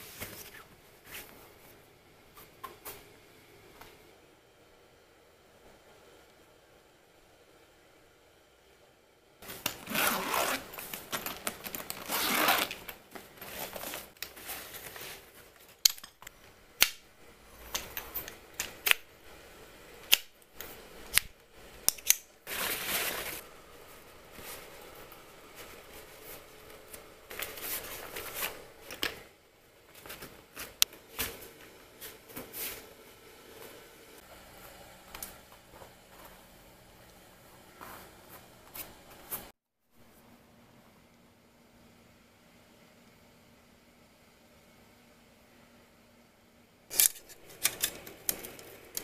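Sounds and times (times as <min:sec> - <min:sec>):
fabric bag rustling: 0:09.4 - 0:15.4, 0:22.5 - 0:23.4.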